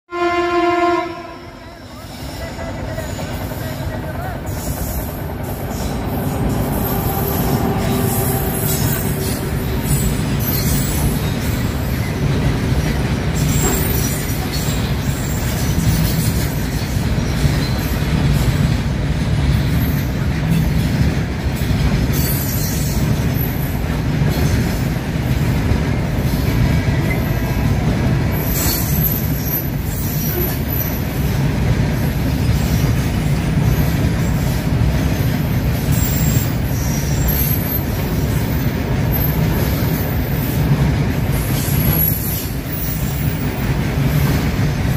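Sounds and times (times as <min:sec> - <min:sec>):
train wheels rumbling on rail: 0:00.1 - 0:44.9
high wheel squeals: 0:01.7 - 0:12.3, 0:13.3 - 0:18.6, 0:28.3 - 0:31.2, 0:32.4 - 0:40.8.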